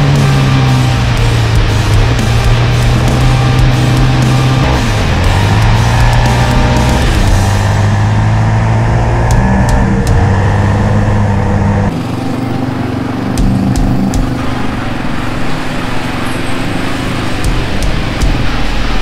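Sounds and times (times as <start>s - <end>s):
atv engine running: 0.0s - 18.9s.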